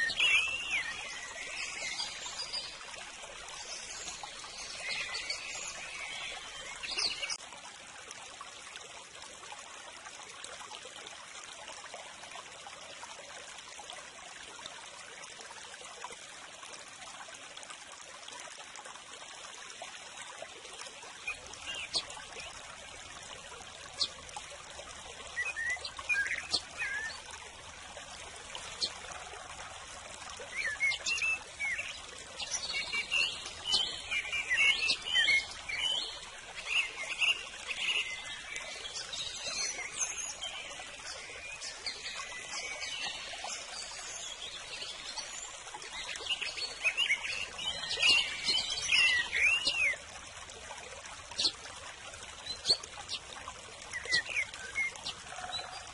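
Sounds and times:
small birds chirping: 0:00.0 - 0:07.4, 0:21.2 - 0:22.7, 0:23.8 - 0:24.2, 0:25.3 - 0:27.3, 0:28.6 - 0:29.4, 0:30.4 - 0:50.0, 0:51.4 - 0:51.6, 0:53.9 - 0:55.9
water trickling: 0:00.0 - 0:55.9.

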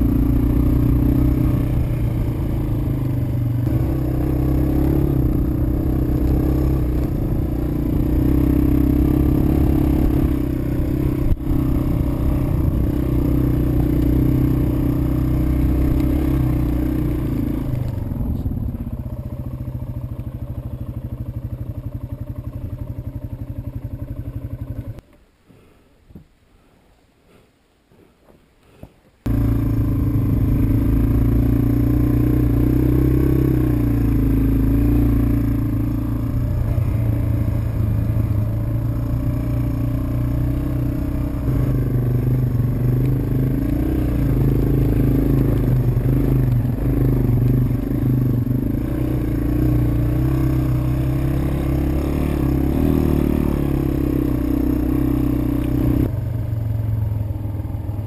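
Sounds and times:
motorcycle engine running: 0:00.0 - 0:25.1, 0:29.2 - 0:58.0.

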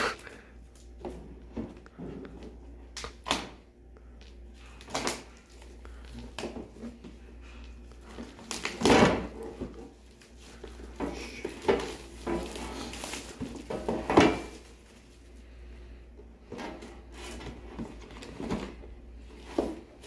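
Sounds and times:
shrink wrap crinkling: 0:07.5 - 0:15.4.

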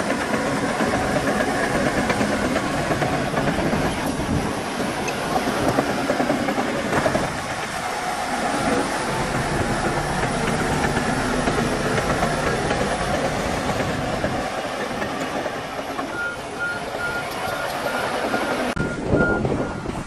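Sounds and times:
heavy machinery running: 0:00.0 - 0:20.0
reversing alarm beeping: 0:16.1 - 0:19.9.

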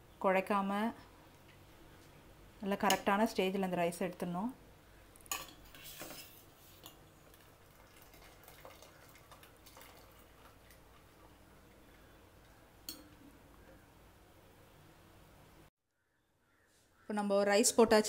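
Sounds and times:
clinks of metal kitchenware: 0:05.3 - 0:05.6.

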